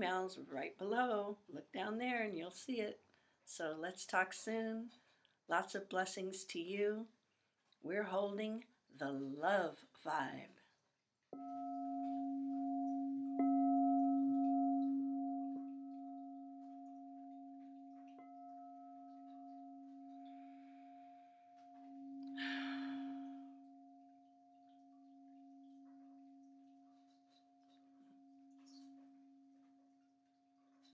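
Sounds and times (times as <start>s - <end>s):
singing bowl ringing: 11.4s - 30.9s.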